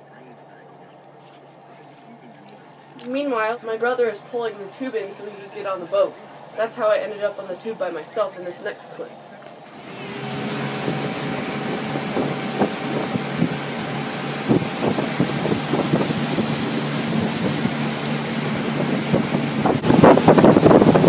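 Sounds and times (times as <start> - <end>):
motorboat engine hum: 0.0 - 21.0
water churning in wake: 9.2 - 21.0
wind buffeting microphone: 9.7 - 21.0.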